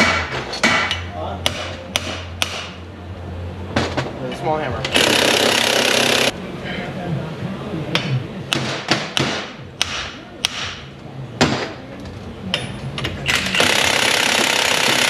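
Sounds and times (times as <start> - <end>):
impact wrench running: 4.9 - 6.4, 13.3 - 15.0.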